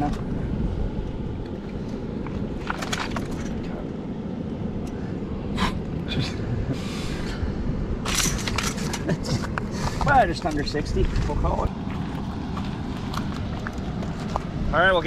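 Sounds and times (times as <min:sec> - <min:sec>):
low rumble: 0:00.0 - 0:15.0
cobblestones clicking and scraping: 0:08.2 - 0:14.6.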